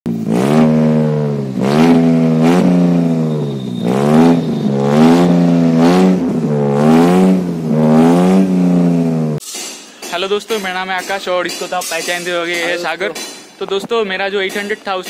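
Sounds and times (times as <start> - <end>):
car engine revving: 0.1 - 9.4.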